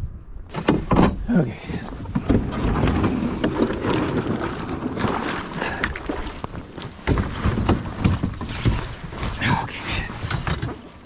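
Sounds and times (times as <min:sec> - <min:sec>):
water splashing against hull: 0:00.5 - 0:11.0.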